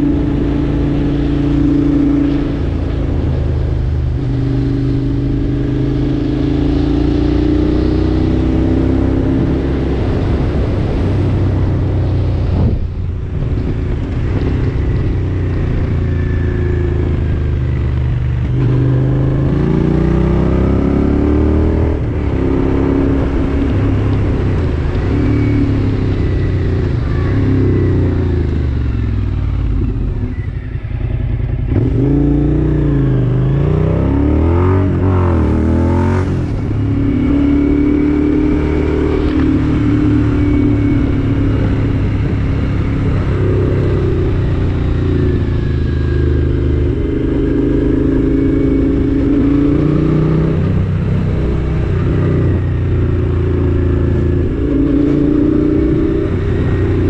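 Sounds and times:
vehicle engine revving: 18.4 - 57.0.

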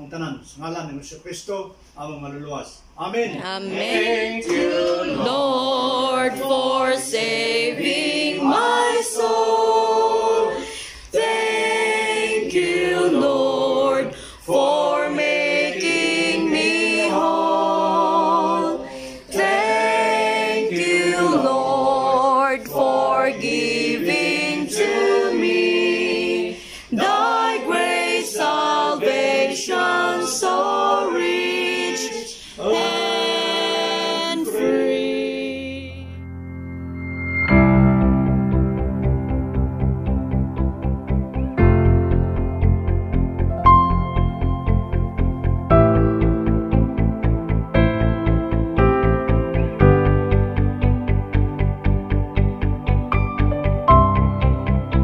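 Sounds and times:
group singing unaccompanied: 3.3 - 36.0.

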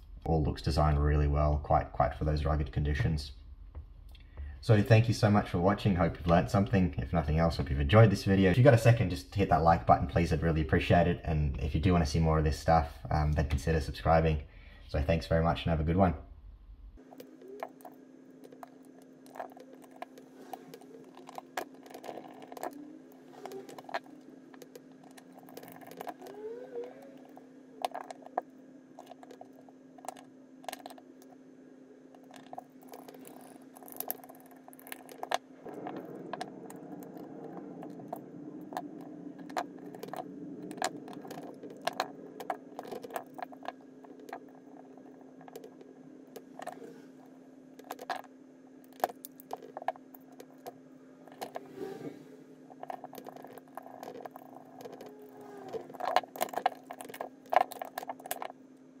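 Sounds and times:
small plastic parts clicking: 17.1 - 22.8, 23.4 - 26.4, 27.2 - 31.4, 32.2 - 45.8, 47.8 - 51.7, 52.7 - 58.6.

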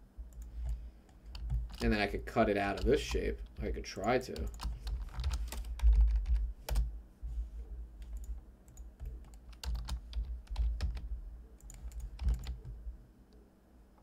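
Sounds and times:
keyboard keystrokes: 4.4 - 6.9, 8.0 - 11.0, 11.6 - 12.7.

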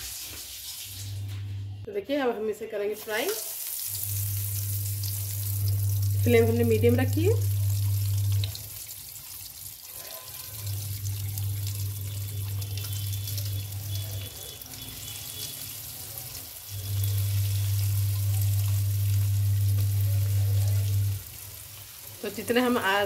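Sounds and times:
hot oil sizzling: 0.0 - 1.5, 2.8 - 23.0
loud low hum: 4.1 - 8.5, 16.8 - 21.2.

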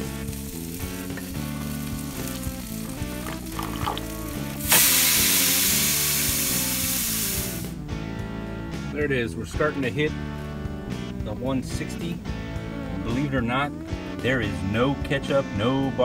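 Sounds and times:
meat juices sizzling: 0.0 - 7.8
background music: 0.0 - 16.0.

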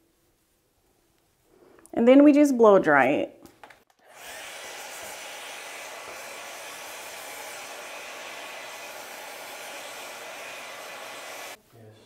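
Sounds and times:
hair dryer blowing: 3.9 - 11.6.

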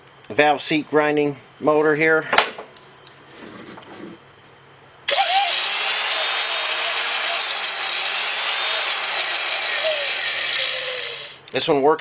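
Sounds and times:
grinder motor whining: 5.1 - 11.4.

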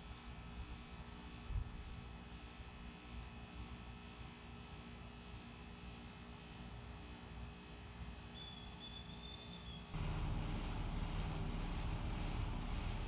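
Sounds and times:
faint whistled bird notes: 7.1 - 10.0.

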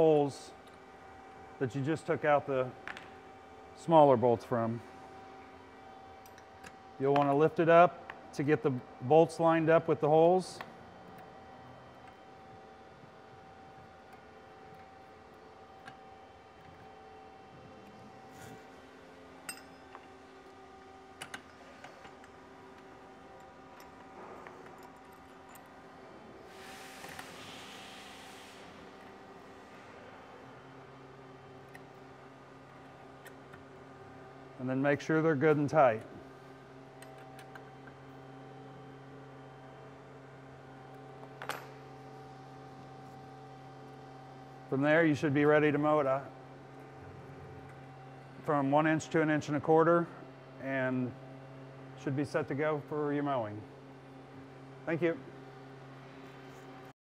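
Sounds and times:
steady electrical hum: 0.0 - 57.0.

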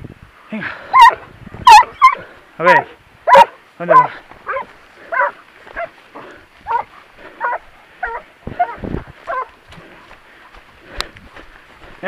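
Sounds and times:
dog yelping whines: 0.9 - 5.9, 6.7 - 9.5.

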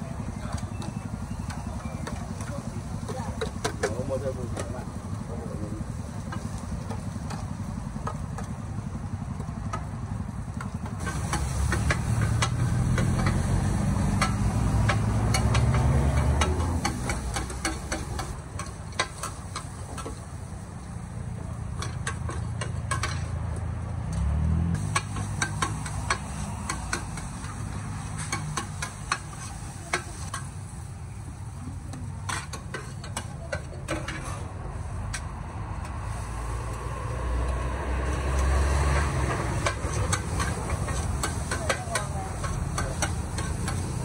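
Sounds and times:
food sizzling: 0.2 - 23.2, 24.8 - 44.0
metal spatulas clacking on wok: 10.6 - 20.1, 21.7 - 23.3, 24.8 - 30.6, 32.2 - 34.3, 38.9 - 44.0.

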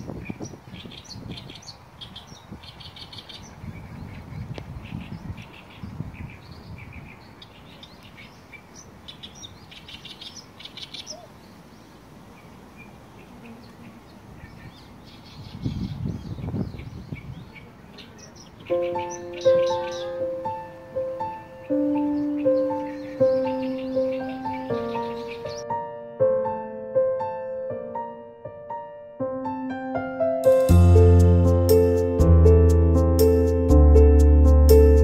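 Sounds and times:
wind buffeting microphone: 0.0 - 9.7, 14.0 - 24.3
small birds chirping: 0.0 - 25.7.

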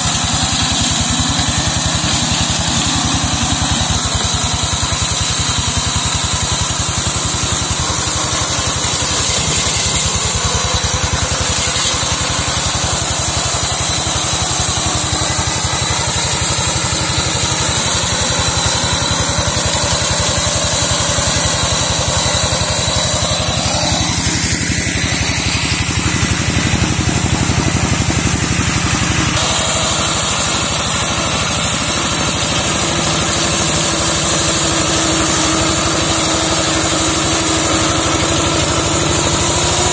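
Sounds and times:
mower slashing through undergrowth: 0.0 - 39.9
tractor engine running under load: 0.0 - 39.9.

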